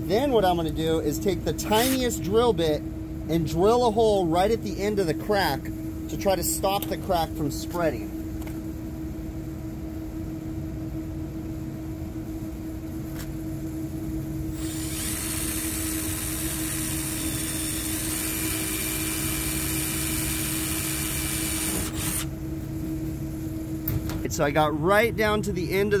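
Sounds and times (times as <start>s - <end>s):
steady machine hum: 0.0s - 26.0s
cordless drill boring metal: 1.7s - 2.0s, 14.5s - 22.3s.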